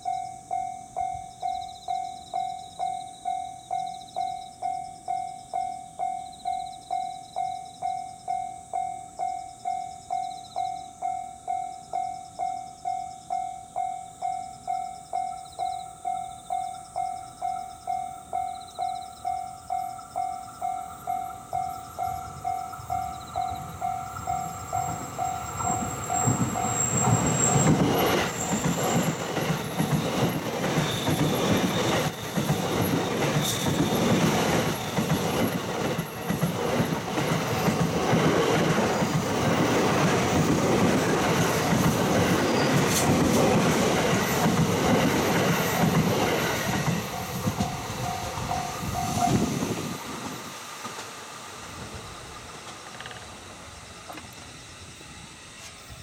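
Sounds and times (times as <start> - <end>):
level-crossing bell dinging: 0.0 - 36.4, 42.1 - 49.7
wheels clacking over rail joints: 19.6 - 51.2, 52.4 - 53.4
train wheels rushing: 20.9 - 56.0.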